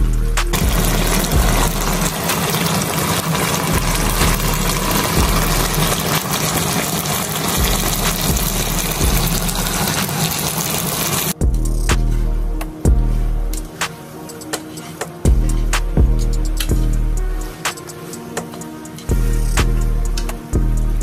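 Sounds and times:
meat sizzling in a frying pan: 0:00.5 - 0:11.4.

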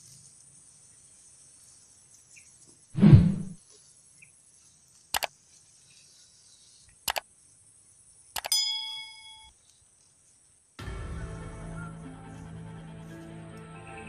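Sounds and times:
insect drone: 0:00.0 - 0:14.0
mouse clicks: 0:08.4 - 0:08.6.

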